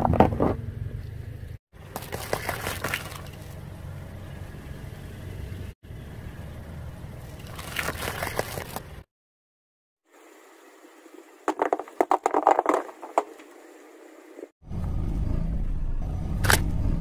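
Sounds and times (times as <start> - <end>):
car rumbling: 2.8 - 9.1.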